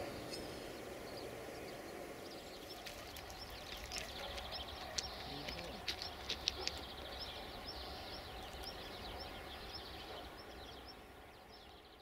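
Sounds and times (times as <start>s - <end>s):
birds chirping: 0.0s - 12.0s
sharp clicks: 2.8s - 7.0s.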